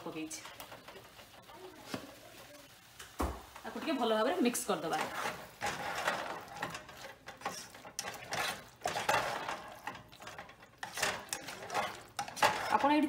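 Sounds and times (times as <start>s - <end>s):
spatula scraping a saucepan: 4.4s - 13.0s.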